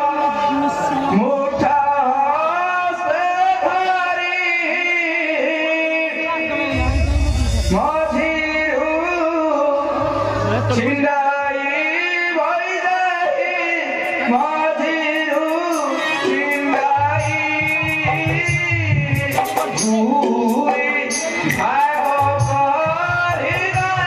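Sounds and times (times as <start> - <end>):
person singing: 0.0 - 24.0
instrumental accompaniment: 6.4 - 12.1, 14.0 - 24.0
low drum beats: 6.6 - 11.3.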